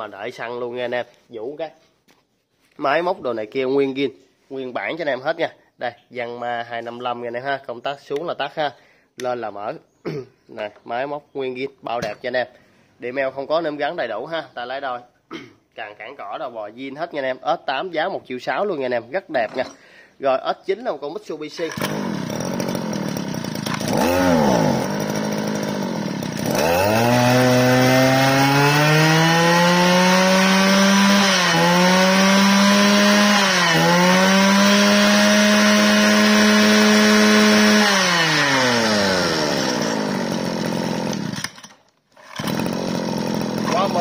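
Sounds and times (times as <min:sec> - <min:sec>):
brush-cutter engine pull-started: 0:21.5 - 0:44.0.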